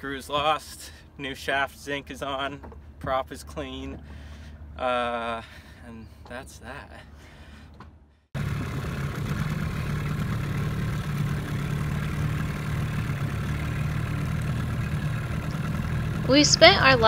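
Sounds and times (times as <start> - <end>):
boat engine running: 1.7 - 17.0.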